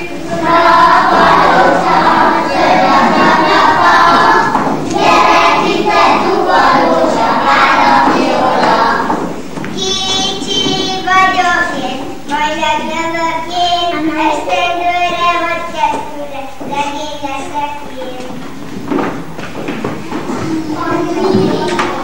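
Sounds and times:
children singing together: 0.0s - 18.3s, 20.0s - 22.0s.

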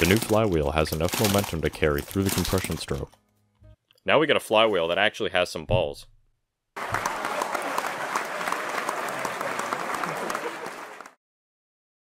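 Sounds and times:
canned laughter and applause: 6.8s - 11.2s.

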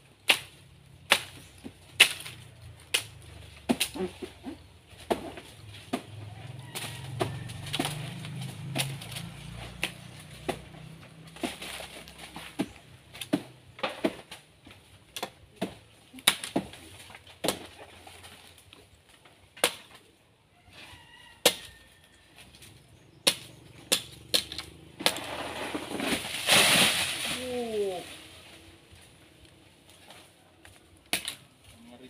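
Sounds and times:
blade whacking tree trunk: 0.2s - 4.3s, 4.9s - 14.5s, 15.1s - 17.8s, 19.6s - 20.0s, 23.2s - 27.6s, 31.1s - 31.4s.

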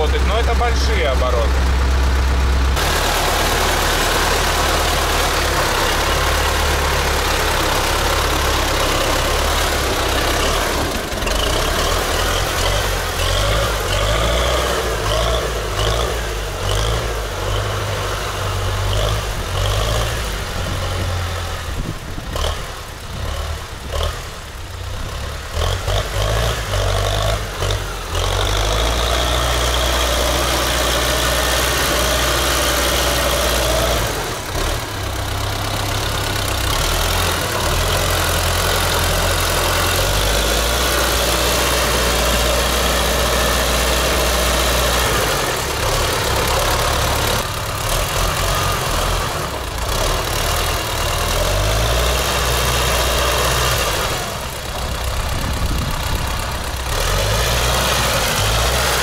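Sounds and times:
diesel engine unstable idle: 0.0s - 59.0s.

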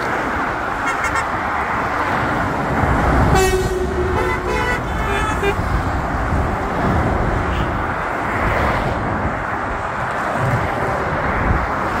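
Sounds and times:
motorway traffic rushing past: 0.0s - 12.0s.

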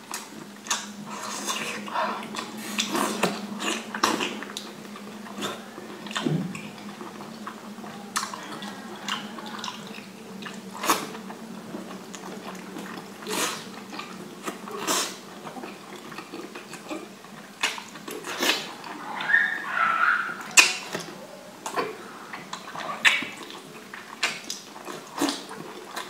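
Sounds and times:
faint steady hum: 0.0s - 26.0s
wet biting and chewing: 0.1s - 19.5s, 20.4s - 26.0s.

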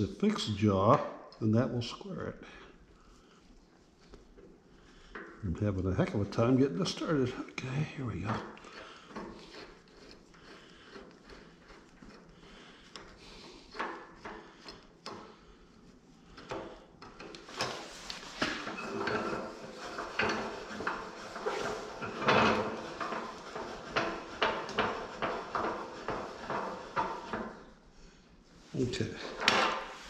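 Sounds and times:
metal clanking and knocking: 17.5s - 27.6s, 29.3s - 30.0s.

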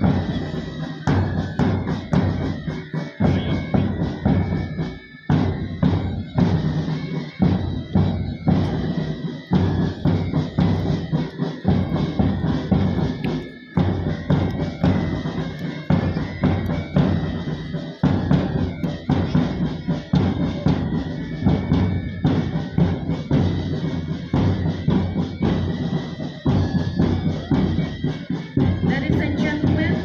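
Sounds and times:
steady bass drum beat: 0.0s - 4.8s, 7.5s - 27.9s
marching band music: 0.0s - 30.0s.

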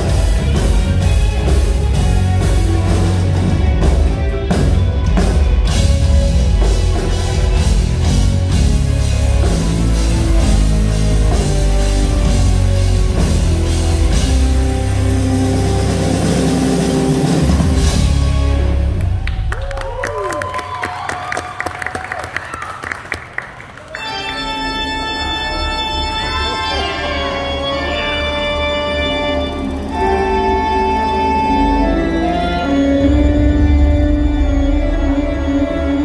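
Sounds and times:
electric guitars: 0.0s - 19.4s
drum kit: 0.0s - 19.7s
bass guitar: 0.0s - 20.1s, 24.0s - 36.0s.

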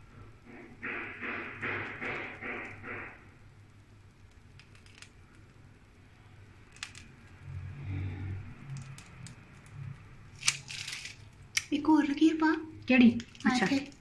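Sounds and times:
plastic piping bag crinkling: 8.6s - 11.7s.

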